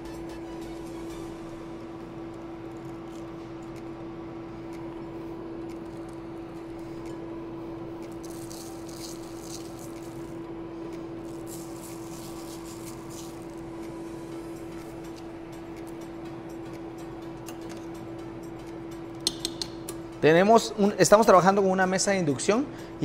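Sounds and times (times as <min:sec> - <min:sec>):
induction cooktop hum: 0:00.0 - 0:23.0
seeds rattling: 0:08.2 - 0:10.4, 0:11.3 - 0:13.6.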